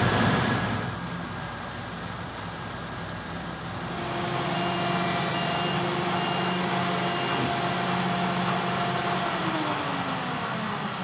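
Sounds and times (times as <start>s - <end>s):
combine harvester drone: 0.0s - 11.0s
short high beeps: 4.5s - 7.5s.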